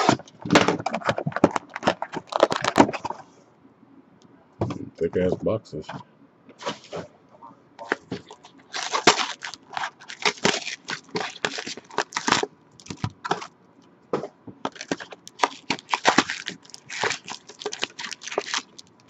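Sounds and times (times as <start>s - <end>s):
card pack wrapper tearing: 0.0s - 3.1s, 7.9s - 13.5s, 14.7s - 19.0s.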